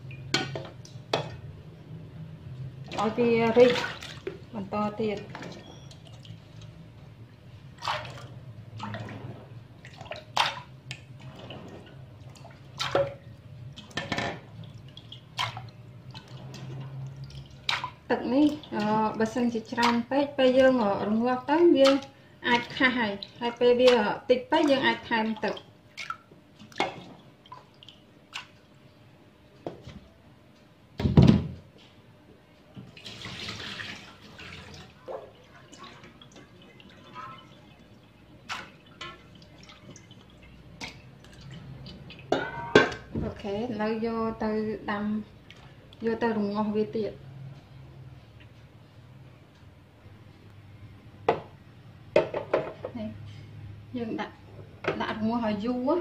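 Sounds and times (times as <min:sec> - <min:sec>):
water splashing and dripping: 0:02.7 - 0:06.8, 0:07.7 - 0:28.8, 0:32.9 - 0:42.4
pot clunking into metal sink: 0:42.3 - 0:43.3
pot knocking in metal sink: 0:42.3 - 0:43.3.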